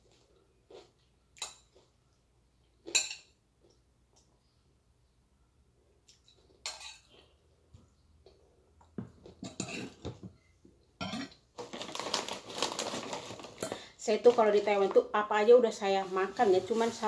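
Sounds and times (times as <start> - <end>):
metal spoon scraping a plate: 6.6 - 7.2, 9.4 - 10.0.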